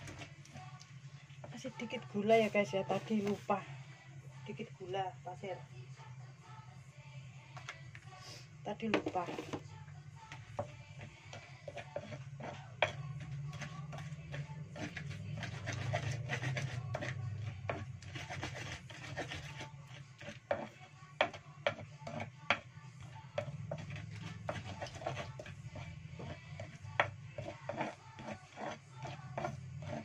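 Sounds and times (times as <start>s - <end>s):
pestle scraping mortar: 0.0s - 0.6s, 9.0s - 9.6s, 10.3s - 30.0s.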